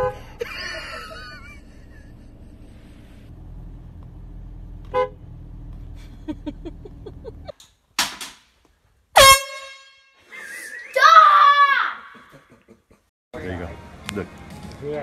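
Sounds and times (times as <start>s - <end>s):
loud air horn blast: 9.2s - 10.2s
short horn honk: 9.2s - 10.2s.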